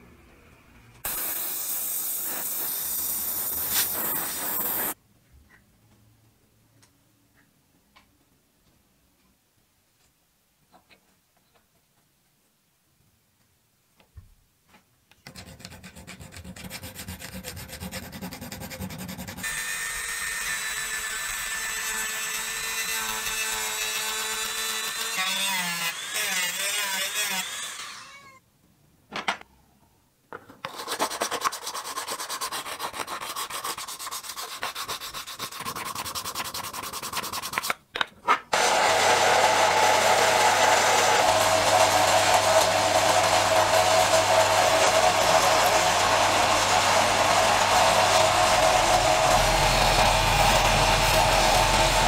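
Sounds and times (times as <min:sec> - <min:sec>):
polishing wheel humming: 0:38.6 - 0:52.0.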